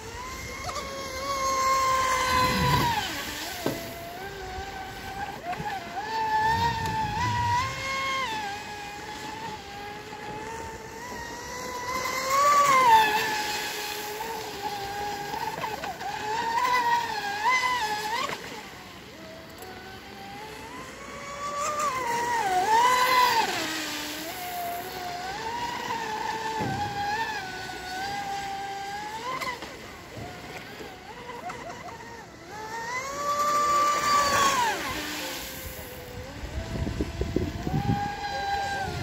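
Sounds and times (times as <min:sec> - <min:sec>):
rc boat electric motor whining: 0:00.0 - 0:39.0.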